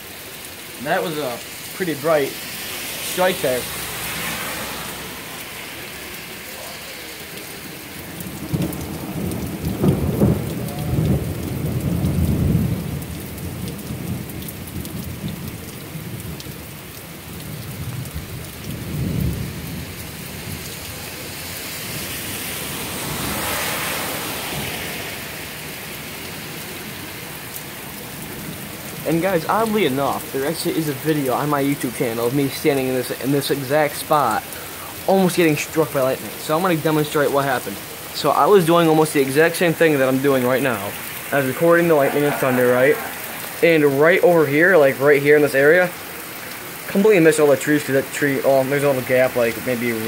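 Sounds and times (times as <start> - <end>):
steady rain: 0.0 - 50.0
thunder rumbling: 8.0 - 16.7, 17.3 - 25.6, 38.3 - 44.5.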